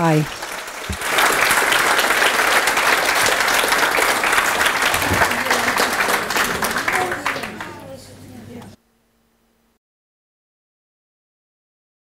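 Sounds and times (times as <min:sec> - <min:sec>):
audience clapping: 0:00.0 - 0:08.0
voices: 0:04.3 - 0:08.8.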